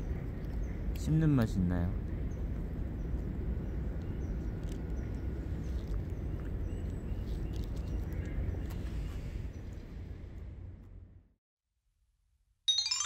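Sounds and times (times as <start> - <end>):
low outdoor rumble: 0.0 - 11.4
dog gnawing a twig: 4.6 - 9.1
faint crunches and clicks: 5.7 - 9.1.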